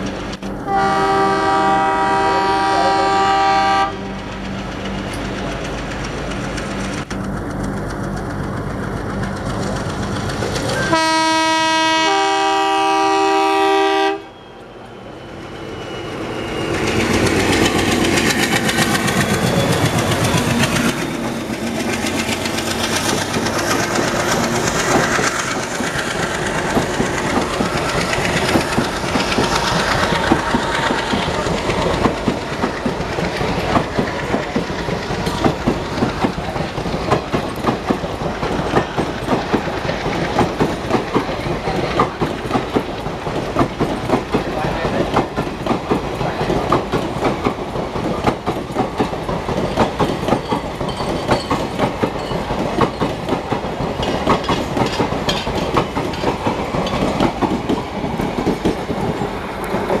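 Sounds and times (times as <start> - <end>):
locomotive horn blast: 0.6 - 4.2, 10.9 - 14.6
train wheels clacking over rail joints: 2.8 - 13.0, 16.4 - 60.0.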